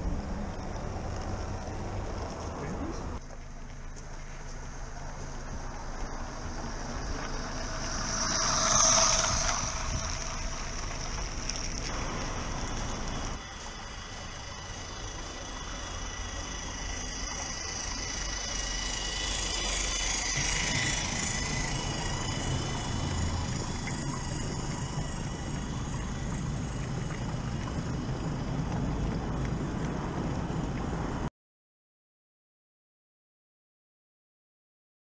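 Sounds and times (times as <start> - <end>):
wagon wheels rumbling on rails: 0.0 - 31.3
model train whine: 4.4 - 31.2.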